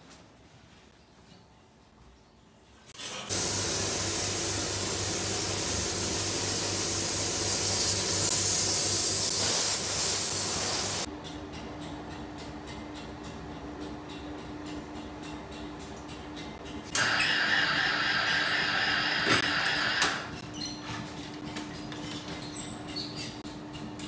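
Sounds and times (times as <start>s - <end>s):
spray gun hissing: 3.3s - 11.1s.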